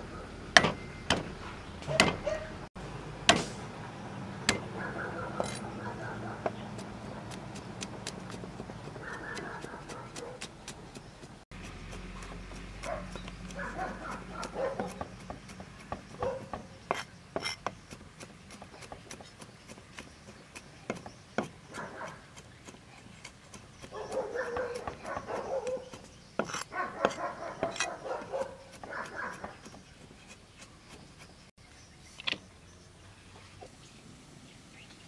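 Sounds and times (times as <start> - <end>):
cleaver chopping on wooden board: 0.6 - 2.3, 3.3 - 3.6, 4.4 - 4.8, 6.4 - 31.4
animal calling: 4.6 - 7.2, 8.8 - 10.5, 12.0 - 15.1, 23.8 - 29.7.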